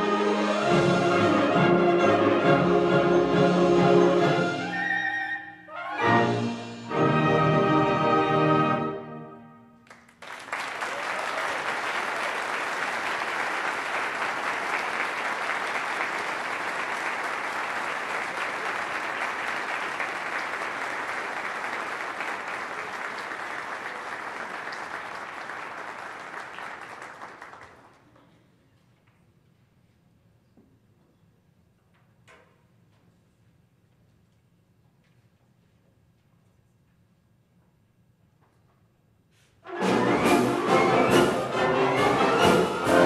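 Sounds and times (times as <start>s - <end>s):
audience applause: 9.8s - 28.2s, 39.7s - 43.0s.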